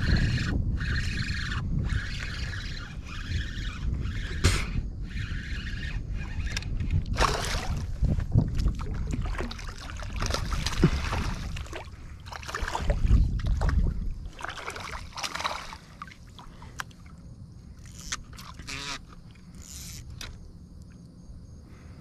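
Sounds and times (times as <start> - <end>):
fish thrashing and splashing: 7.1 - 16.7.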